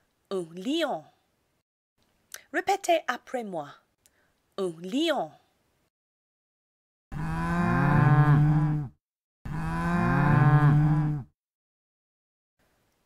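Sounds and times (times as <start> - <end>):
cow mooing: 7.1 - 8.9, 9.5 - 11.3.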